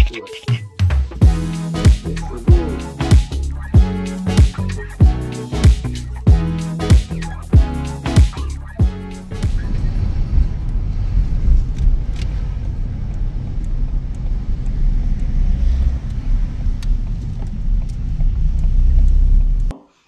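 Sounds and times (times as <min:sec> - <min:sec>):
car driving rumble: 0:08.4 - 0:19.7.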